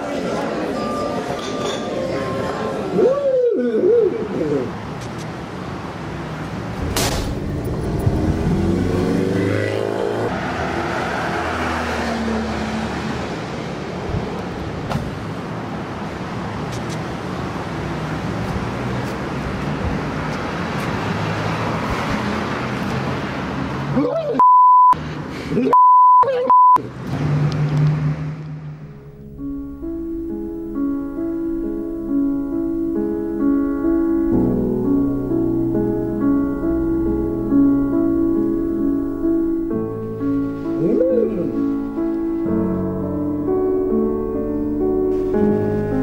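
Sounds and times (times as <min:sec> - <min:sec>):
cars going by: 0:04.2 - 0:25.7, 0:26.8 - 0:46.0
high censor bleeps: 0:24.4 - 0:25.0, 0:25.8 - 0:26.8.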